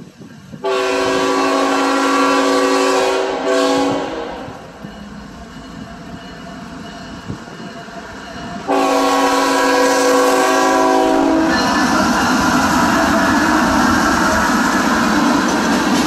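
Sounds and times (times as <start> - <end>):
locomotive rumbling past: 0.0 - 16.0
locomotive air horn: 0.6 - 4.6, 8.6 - 12.4.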